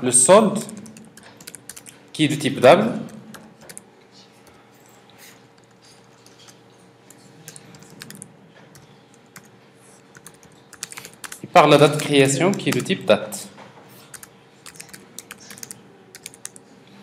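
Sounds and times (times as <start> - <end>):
faint steady hum: 0.0 - 17.0
keystrokes on computer keyboard: 0.6 - 2.0, 3.0 - 4.6, 5.6 - 13.0, 14.0 - 16.7.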